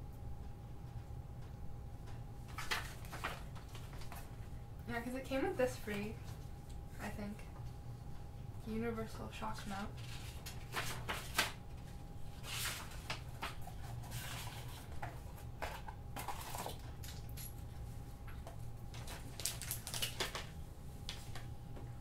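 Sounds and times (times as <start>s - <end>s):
low steady hum: 0.0s - 22.0s
cardboard and paper rustling: 2.5s - 4.4s, 9.8s - 16.8s, 19.0s - 20.5s.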